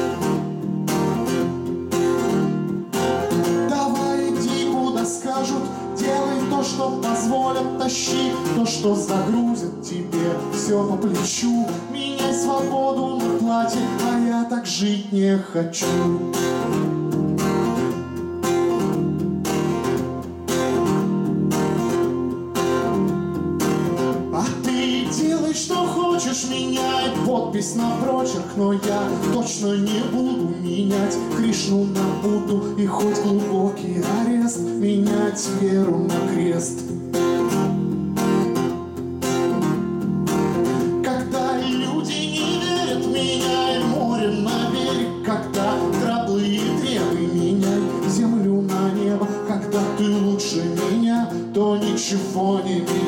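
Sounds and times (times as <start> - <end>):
acoustic guitar strumming: 0.0 - 53.0
man singing: 3.0 - 17.0, 24.2 - 37.8, 40.6 - 53.0.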